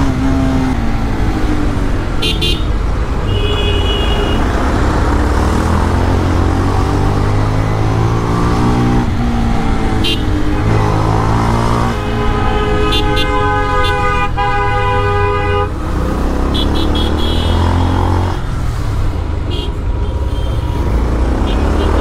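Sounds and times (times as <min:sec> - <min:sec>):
motorcycle engine revving: 0:00.0 - 0:22.0
vehicle horn honking: 0:02.2 - 0:02.7, 0:03.3 - 0:04.5, 0:10.0 - 0:15.8, 0:16.4 - 0:17.8.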